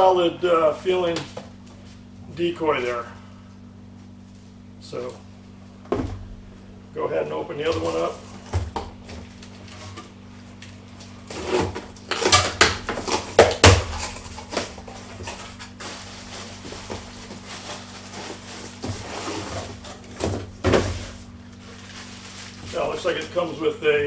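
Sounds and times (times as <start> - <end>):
packaging rustling: 11.3 - 20.2, 20.9 - 23.2.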